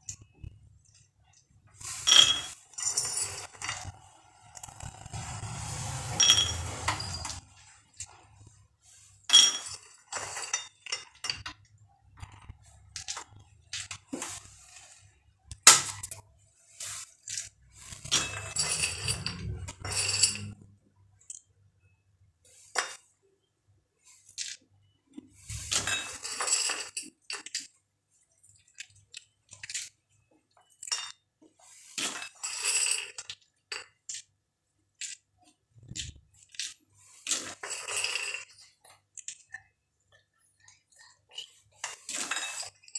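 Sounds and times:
peanuts clinking on ceramic plates: 9.2 - 14.0, 17.3 - 20.6, 25.5 - 27.8, 30.5 - 31.3, 36.0 - 42.9.

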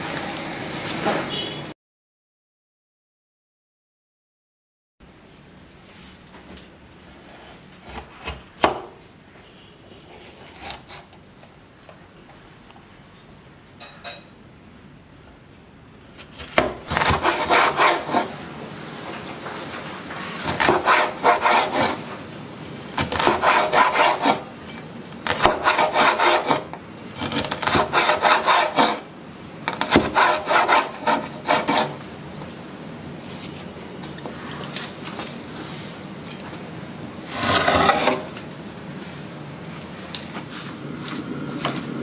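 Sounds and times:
knife cutting on wooden board: 7.1 - 8.8, 10.1 - 11.2, 16.2 - 18.3, 20.4 - 22.0, 23.0 - 29.0, 29.7 - 32.0, 37.3 - 38.3.

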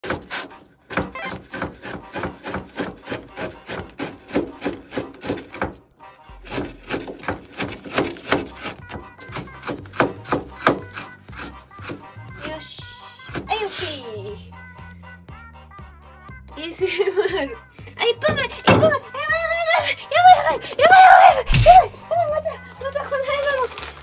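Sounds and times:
knife chopping on plastic board: 0.0 - 5.8, 6.4 - 12.1, 13.3 - 13.5, 18.3 - 19.0.

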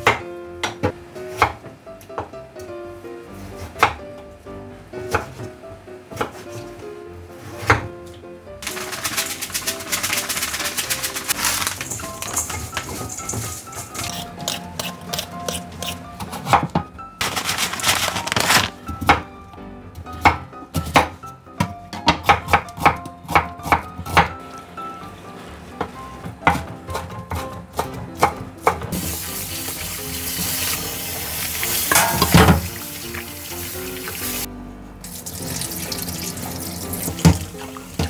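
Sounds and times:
background music: 0.0 - 38.0
knife striking cutting board: 12.2 - 16.9
tap running water: 28.9 - 34.5, 35.1 - 38.0.

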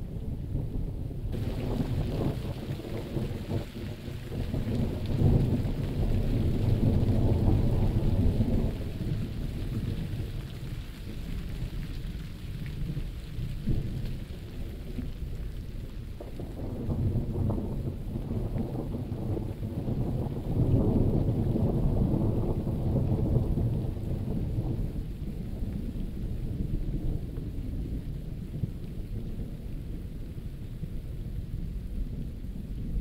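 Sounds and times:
steady rain: 0.0 - 33.0
rolling thunder: 0.2 - 10.5, 12.8 - 30.1.

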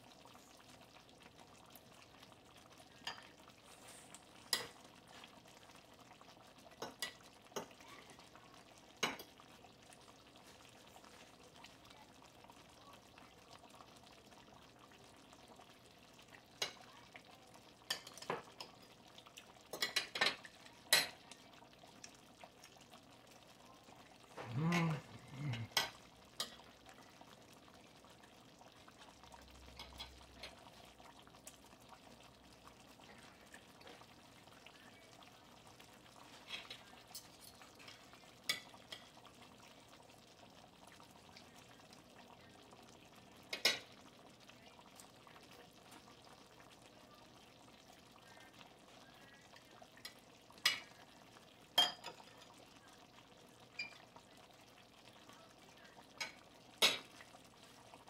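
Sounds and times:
faint pot simmering: 0.0 - 58.0
cutlery clinking on ceramic plate: 51.8 - 52.2.

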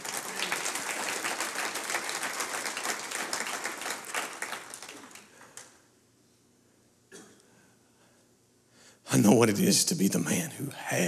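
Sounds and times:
crowd applauding: 0.0 - 5.8.

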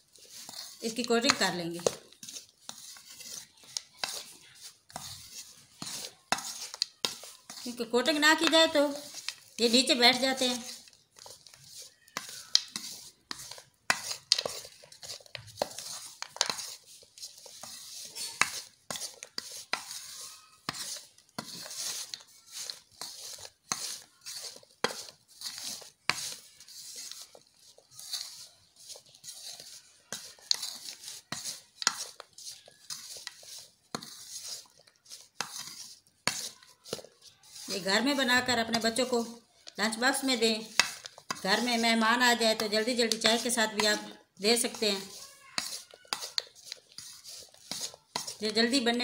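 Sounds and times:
metal spoon scraping ceramic plate: 42.5 - 48.8.

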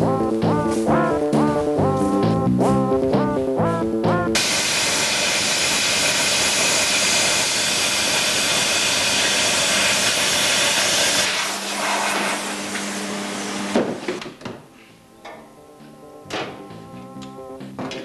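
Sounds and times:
welding arc crackling hiss: 4.4 - 14.1
knocks: 16.3 - 16.7.

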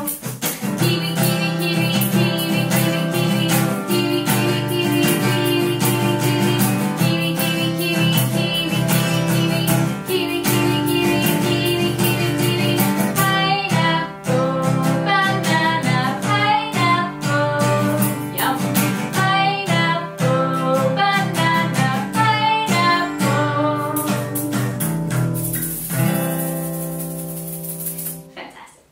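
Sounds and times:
woman singing: 0.0 - 24.5
strummed acoustic guitar: 0.0 - 28.4
shaker hiss: 24.0 - 28.3.

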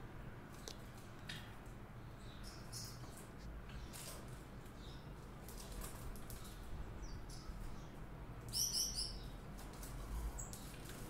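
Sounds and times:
goldfinch chirps: 8.5 - 9.4.

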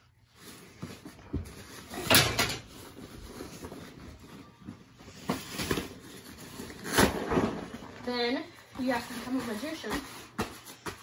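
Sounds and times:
nylon rain cover rustling: 6.2 - 10.3.

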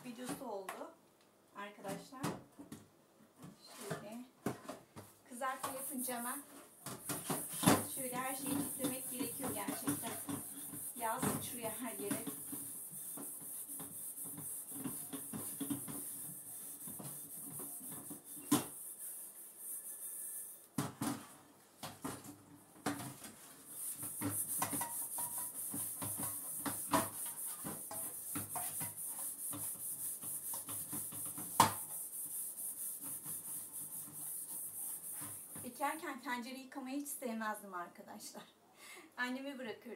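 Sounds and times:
pot scrubbing in a sink: 5.7 - 20.5, 22.0 - 35.7.

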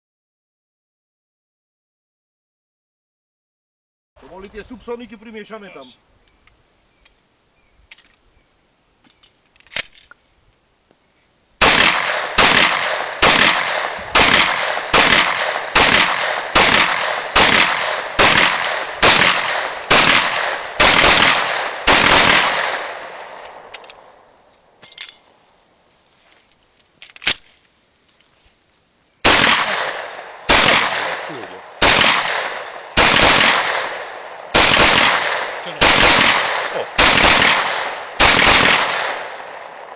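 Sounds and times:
pistol shots with echo: 11.6 - 23.8, 29.3 - 39.8.

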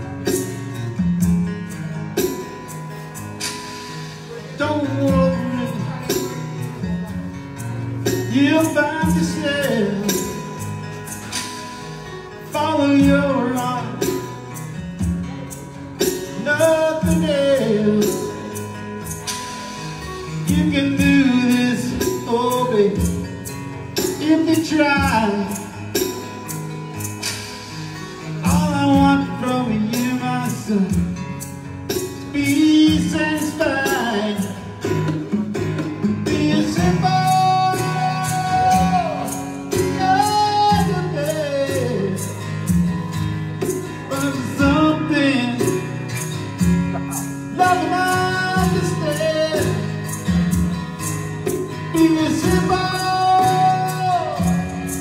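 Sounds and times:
acoustic guitars strummed: 0.0 - 55.0
person singing: 4.0 - 7.4, 15.2 - 18.8, 19.6 - 23.4, 28.1 - 31.2, 32.3 - 35.3, 36.2 - 42.4, 43.6 - 50.3, 51.6 - 55.0.

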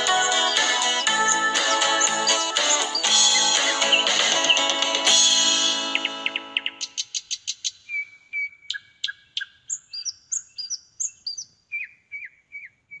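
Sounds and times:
guitar tune: 0.0 - 6.6
bird chirping and whistling: 2.0 - 4.8, 5.9 - 13.0.

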